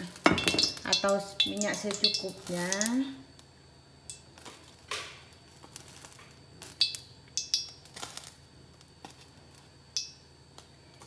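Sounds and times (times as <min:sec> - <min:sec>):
faint steady hum: 0:00.0 - 0:11.0
metal kitchenware clinking: 0:00.2 - 0:03.0.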